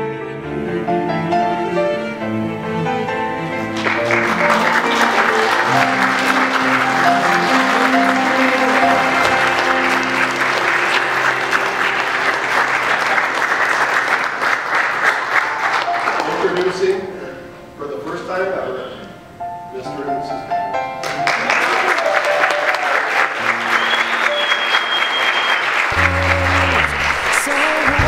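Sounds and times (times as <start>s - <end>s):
instrumental music: 0.0s - 14.3s, 25.8s - 28.0s
crowd applauding: 3.5s - 17.0s, 21.0s - 28.0s.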